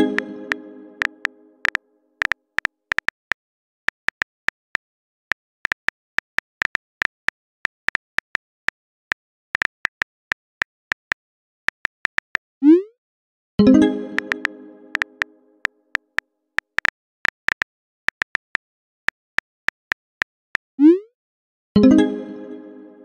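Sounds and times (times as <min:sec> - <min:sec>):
music: 0:00.0 - 0:02.2, 0:13.6 - 0:15.9, 0:21.8 - 0:23.0
phone keyboard clicks: 0:01.0 - 0:04.8, 0:05.6 - 0:12.4, 0:14.2 - 0:15.3, 0:16.0 - 0:18.6.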